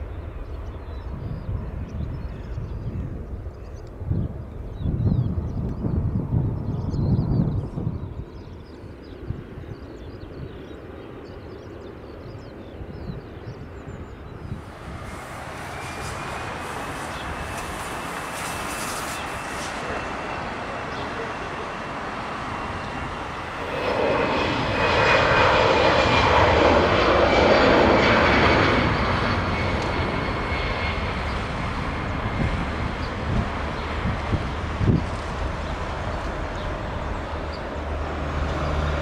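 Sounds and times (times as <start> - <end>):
jet engines rushing with whine: 0.0 - 39.0.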